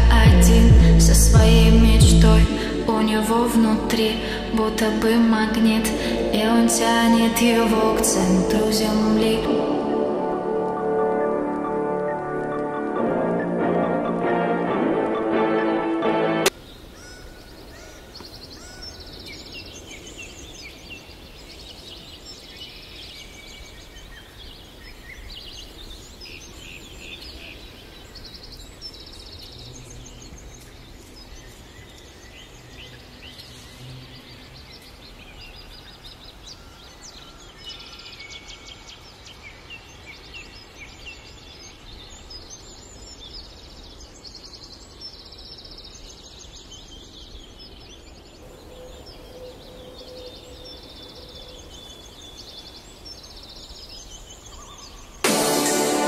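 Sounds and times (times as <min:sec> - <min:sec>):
low background rumble: 0:00.0 - 0:09.9
songbirds chirping and trilling: 0:16.5 - 0:56.0.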